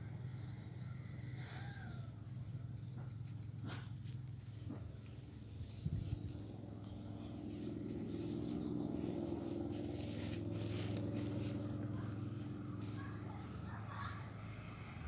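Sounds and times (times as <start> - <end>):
vehicle engine hum: 0.0 - 15.0.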